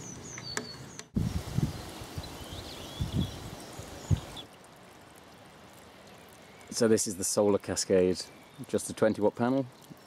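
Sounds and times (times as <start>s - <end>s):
birds chirping: 0.0s - 4.6s, 6.0s - 10.0s
background hiss: 0.0s - 10.0s.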